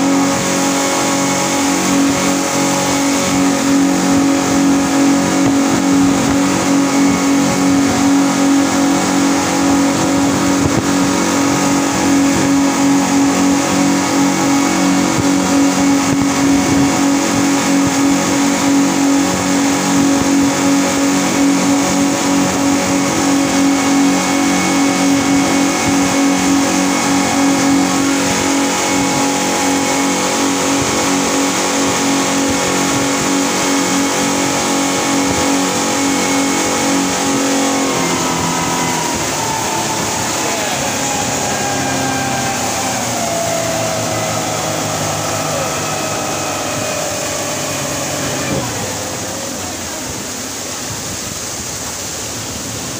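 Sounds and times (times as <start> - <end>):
outboard motors droning: 0.0 - 52.9
rush of wake and wind: 0.0 - 52.9.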